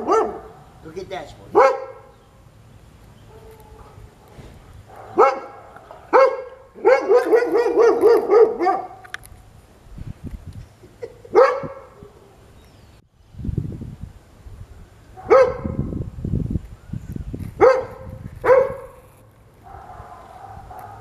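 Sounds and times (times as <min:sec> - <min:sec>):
puppy barking: 0:00.0 - 0:00.7, 0:01.5 - 0:02.1, 0:03.3 - 0:09.0, 0:11.3 - 0:12.1, 0:15.2 - 0:15.8, 0:17.6 - 0:19.0, 0:19.6 - 0:21.0.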